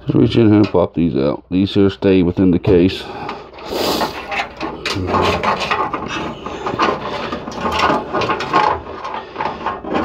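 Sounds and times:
cables rattling against metal case: 3.2 - 10.0.

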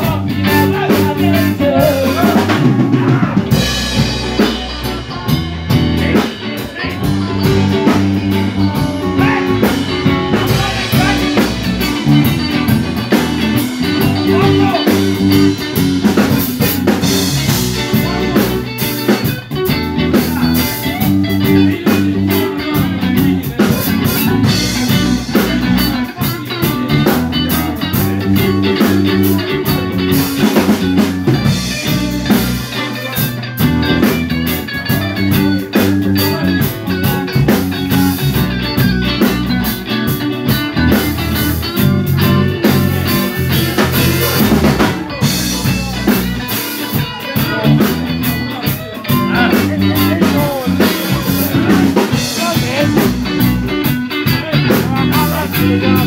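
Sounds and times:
bass guitar: 0.0 - 56.0
drum kit: 0.0 - 56.0
electric guitars: 0.0 - 56.0.

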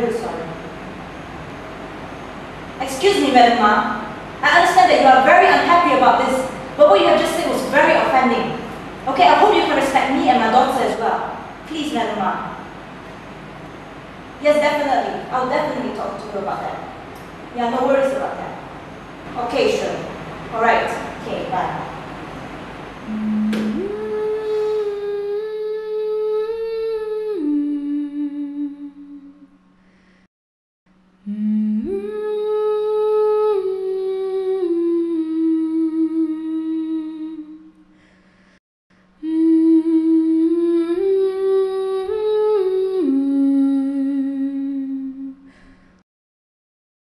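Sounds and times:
low steady drone: 0.0 - 30.3, 31.0 - 46.0
person humming slow melody: 23.0 - 29.5, 31.2 - 38.0, 39.2 - 45.8.

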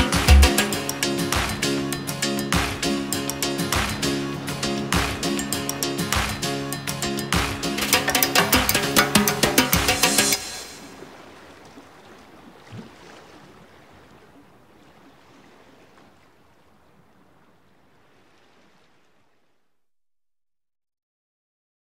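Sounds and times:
faint rushing noise: 7.8 - 11.2.

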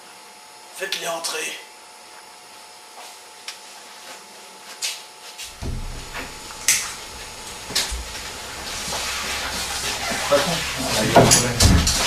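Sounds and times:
steady background hiss: 5.5 - 12.0.

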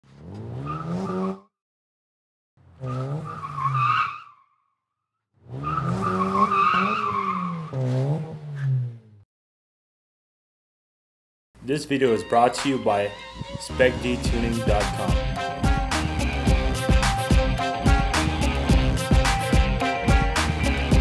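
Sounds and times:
engine revving: 0.0 - 1.4, 5.4 - 9.2, 13.4 - 21.0
car tyres squealing: 0.1 - 1.5, 2.6 - 4.6, 5.4 - 9.1.

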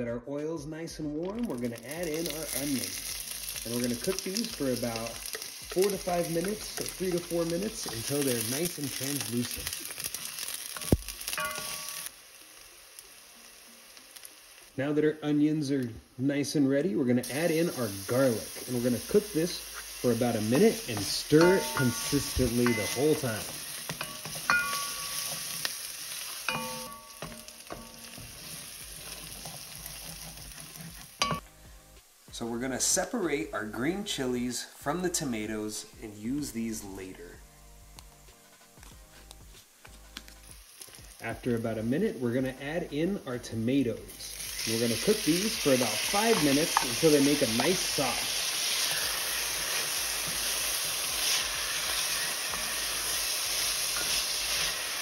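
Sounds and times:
onions sizzling in oil: 1.4 - 34.3, 38.7 - 55.0
wooden spoon stirring: 1.6 - 12.1, 18.2 - 31.4, 44.6 - 54.9.

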